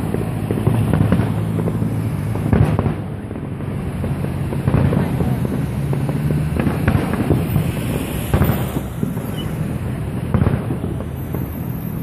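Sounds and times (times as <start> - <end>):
distant firework bangs: 0.0 - 12.0.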